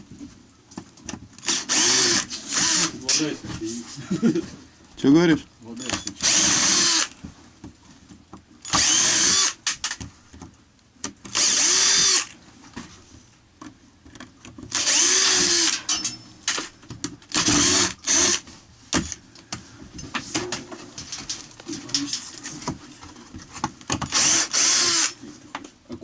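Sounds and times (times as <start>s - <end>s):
cordless drill driving screws: 1.4s - 3.0s, 6.1s - 7.2s, 8.7s - 10.0s, 11.3s - 12.4s, 14.7s - 15.9s, 17.3s - 18.4s, 24.1s - 25.2s.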